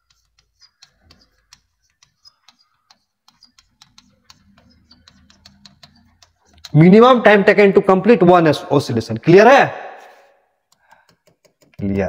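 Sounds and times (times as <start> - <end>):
chalk tapping on blackboard: 0.0 - 7.4, 10.1 - 11.9.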